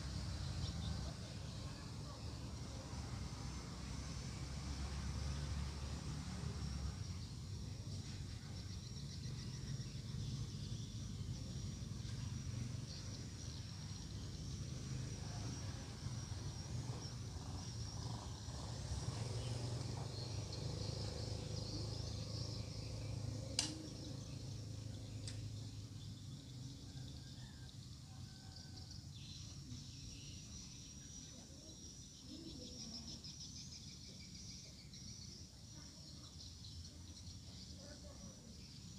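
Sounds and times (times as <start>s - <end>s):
sharp click: 23.5s - 24.0s.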